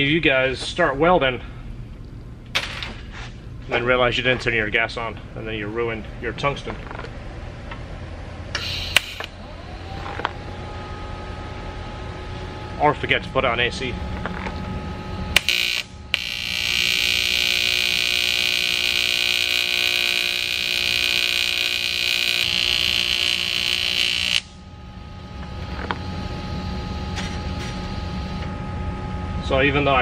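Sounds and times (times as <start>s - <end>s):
welding arc buzzing: 8.5s - 10.6s, 15.3s - 28.4s.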